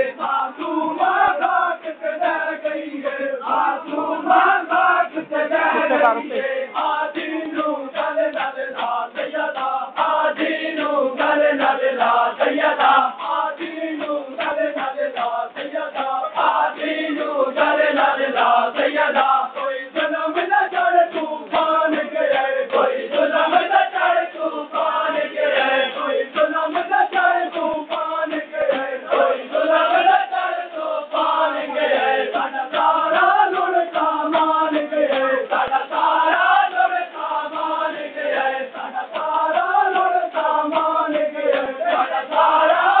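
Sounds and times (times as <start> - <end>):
men chanting in unison: 0.0 - 43.0
hands slapping chests: 38.7 - 43.0.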